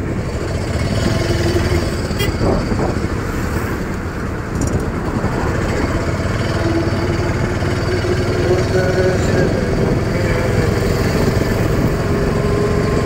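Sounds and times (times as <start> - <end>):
auto-rickshaw engine running: 0.0 - 13.0.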